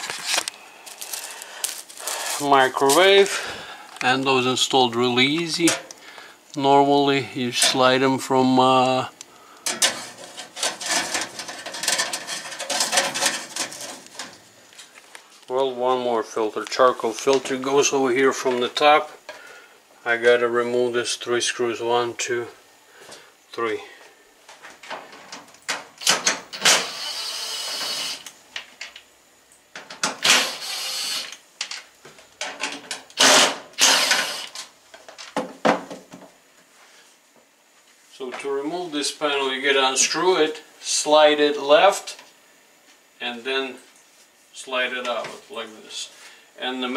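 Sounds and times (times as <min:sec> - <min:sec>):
cordless drill backing out screws: 0:26.0 - 0:28.3, 0:30.2 - 0:31.3, 0:32.6 - 0:34.6.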